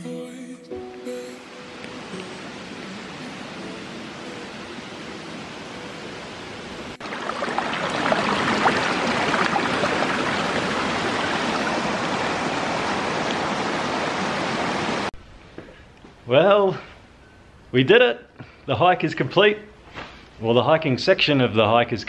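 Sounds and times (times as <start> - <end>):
stream splashing over rocks: 6.9 - 15.1.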